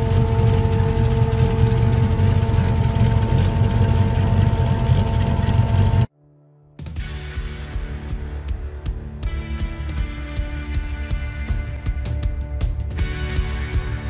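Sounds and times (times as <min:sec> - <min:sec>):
car engine idling: 0:00.0 - 0:06.1.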